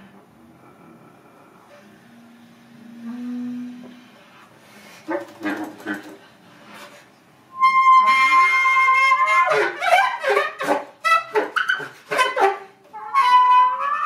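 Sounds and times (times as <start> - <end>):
high woodwind note: 7.5 - 10.4, 12.9 - 14.0.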